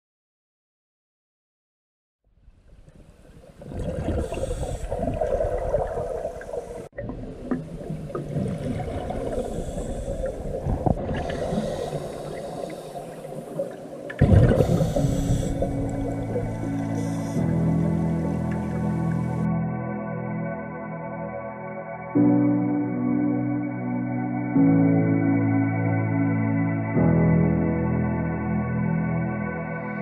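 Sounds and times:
bubbling exhalations: 0:03.6 - 0:17.8
soft ambient music: 0:03.9 - 0:30.0
diver breathing through regulator: 0:04.0 - 0:07.0, 0:08.9 - 0:19.5.

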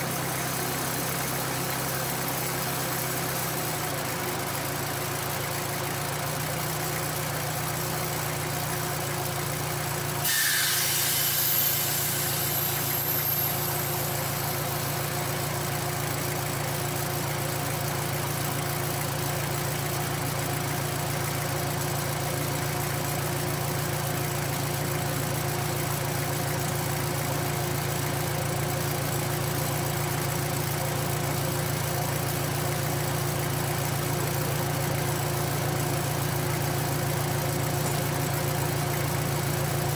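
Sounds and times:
burst of hiss: 0:10.2 - 0:14.7.

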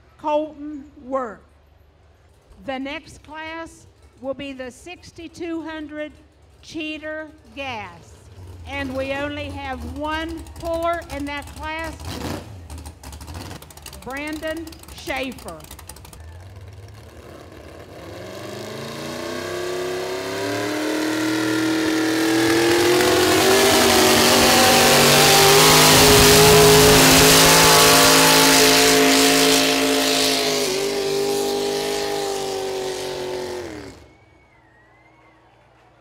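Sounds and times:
truck engine at full throttle: 0:08.2 - 0:34.2.

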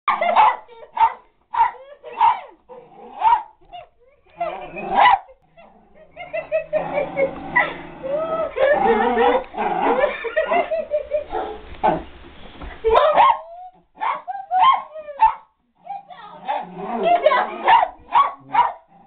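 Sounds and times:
small dog barking: 0:00.1 - 0:02.6, 0:03.2 - 0:03.5, 0:04.9 - 0:05.3, 0:12.9 - 0:15.5, 0:17.2 - 0:18.9
people talking: 0:03.7 - 0:05.0, 0:08.0 - 0:09.4, 0:15.8 - 0:18.6
people laughing: 0:04.1 - 0:11.4, 0:16.9 - 0:17.7.

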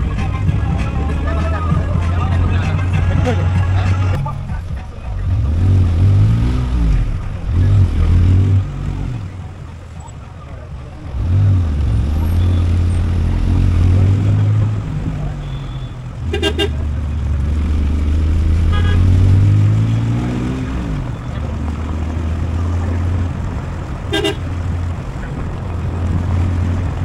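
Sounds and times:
car engine hum: 0:00.0 - 0:27.0
tyre and wind noise: 0:00.0 - 0:27.0
car horn toots: 0:15.3 - 0:16.9, 0:18.5 - 0:19.4, 0:24.1 - 0:24.6.

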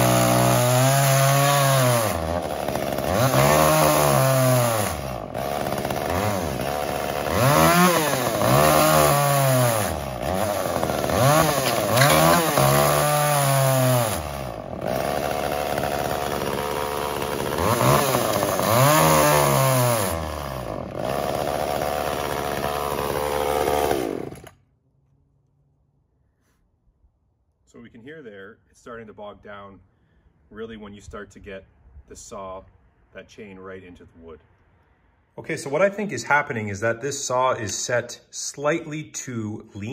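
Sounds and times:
chainsaw cutting wood: 0:00.0 - 0:24.7.

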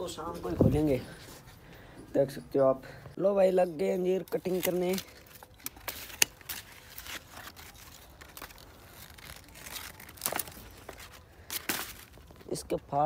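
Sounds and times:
dry leaves and twigs rustling: 0:03.4 - 0:13.0
pruning shears snipping branches: 0:04.2 - 0:08.6.

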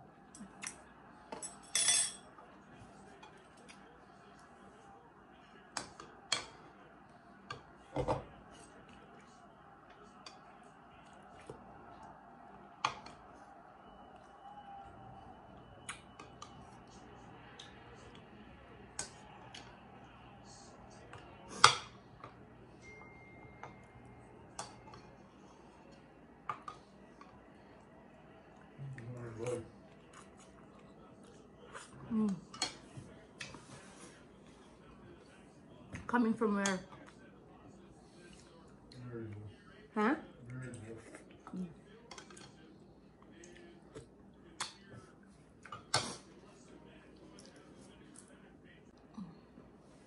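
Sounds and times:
spoon clinking ceramic bowl: 0:01.3 - 0:02.2.

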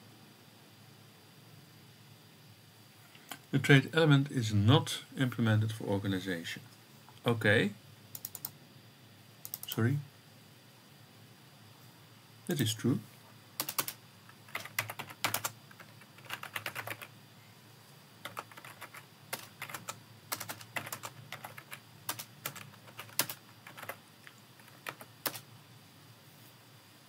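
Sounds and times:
typing on computer keyboard: 0:08.2 - 0:08.6, 0:09.4 - 0:09.8, 0:13.6 - 0:17.1, 0:18.2 - 0:25.5.

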